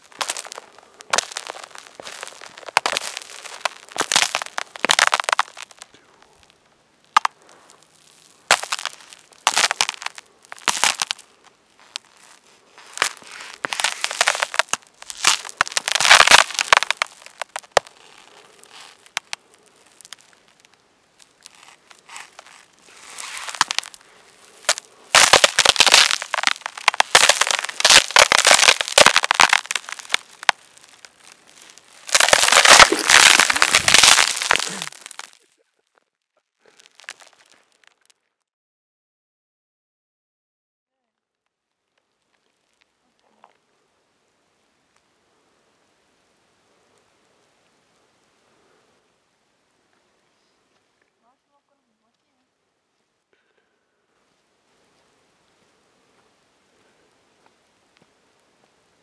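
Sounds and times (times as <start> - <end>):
footsteps crunching on ice: 0.0 - 6.6, 7.2 - 35.5, 36.7 - 38.1.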